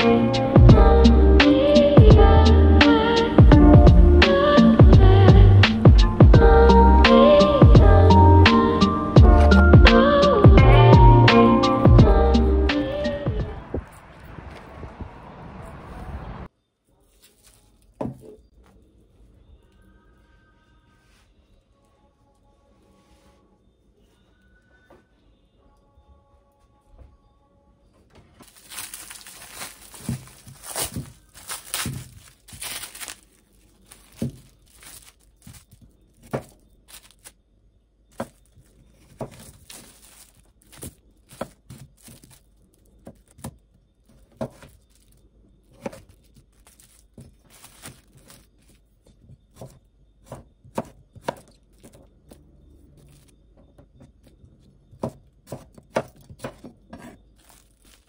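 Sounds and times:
rustling and crinkling: 0:16.8 - 0:24.2, 0:28.1 - 0:37.4, 0:38.1 - 0:58.0.

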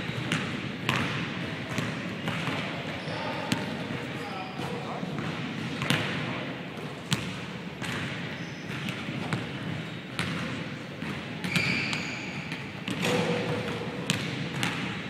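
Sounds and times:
basketballs bouncing on wood floor: 0:00.0 - 0:06.2, 0:07.1 - 0:15.0.

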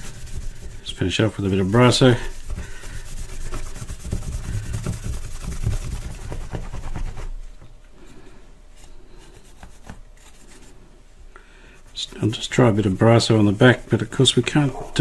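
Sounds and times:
cloth rubbing on plastic: 0:00.0 - 0:07.4, 0:11.9 - 0:15.0.

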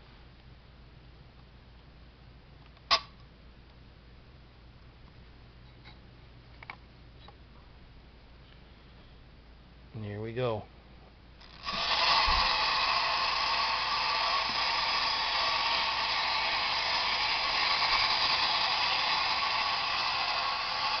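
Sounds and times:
clockwork toy motors whirring: 0:11.4 - 0:21.0.

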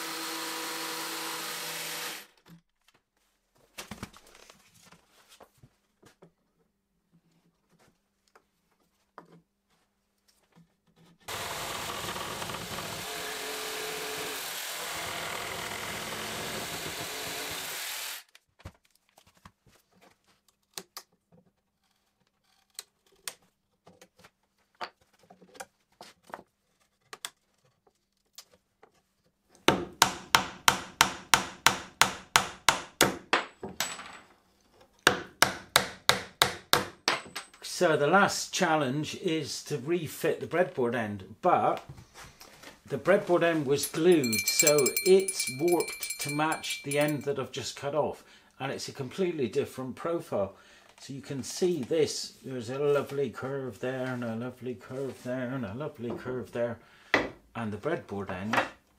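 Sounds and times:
jigsaw cutting wood: 0:00.0 - 0:02.4, 0:11.3 - 0:18.3
hammer striking rapidly: 0:43.8 - 0:47.3.

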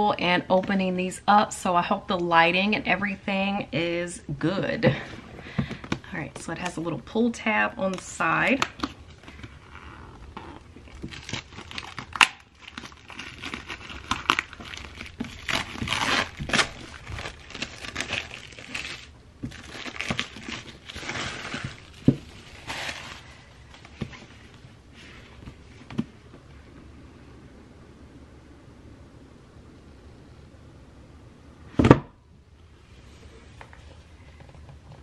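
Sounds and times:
paper packaging crinkling and tearing: 0:08.0 - 0:24.6.

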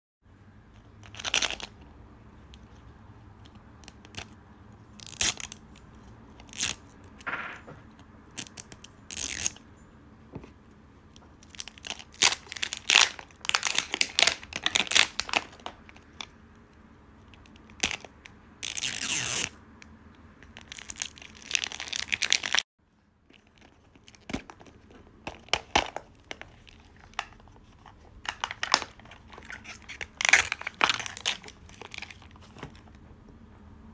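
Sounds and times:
plastic wrap crinkling and tearing: 0:11.4 - 0:16.3, 0:20.6 - 0:22.7, 0:25.4 - 0:32.6.

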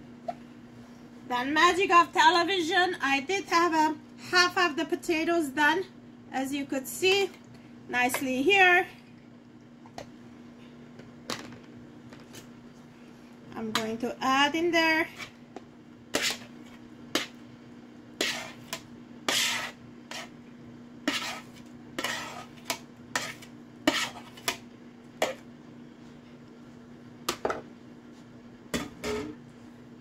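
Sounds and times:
metal spoon scraping bowls: 0:21.1 - 0:24.5.

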